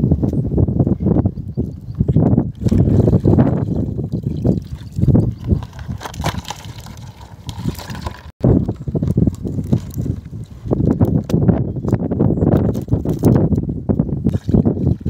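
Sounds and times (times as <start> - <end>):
pond water sloshing and splashing: 2.5 - 8.4, 14.3 - 15.0.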